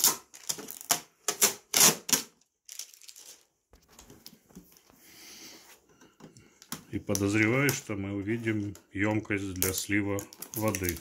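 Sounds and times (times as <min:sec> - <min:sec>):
tape ripping off plastic: 0:00.0 - 0:03.4
faint handling noise: 0:02.7 - 0:11.0.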